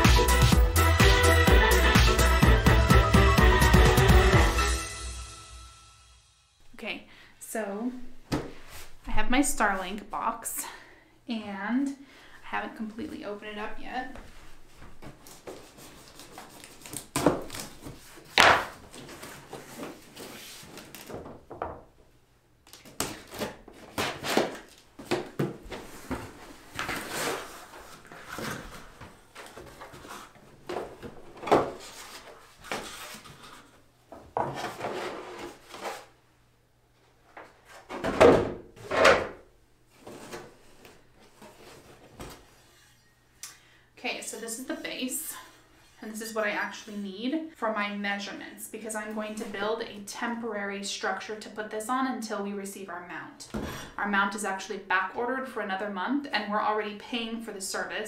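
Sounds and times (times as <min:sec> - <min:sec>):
cardboard box being unpacked: 0:22.8 - 0:33.8.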